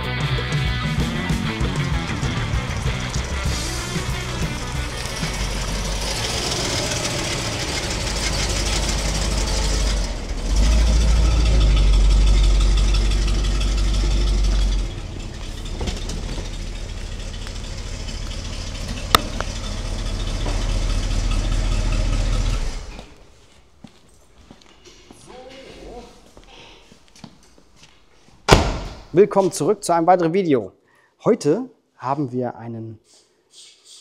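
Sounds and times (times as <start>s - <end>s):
car engine rumbling: 0.0s - 23.8s.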